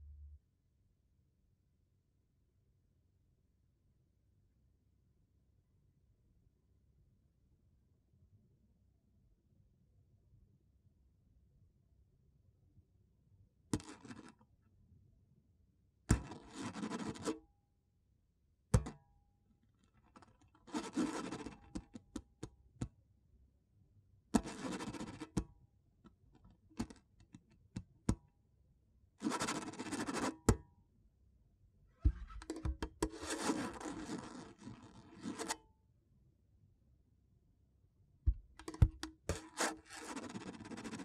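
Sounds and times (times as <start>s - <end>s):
sharp knocks on guitar: 18.8s - 19.0s, 32.0s - 33.2s, 38.3s - 39.1s
hand scraping acoustic guitar: 32.0s - 35.6s.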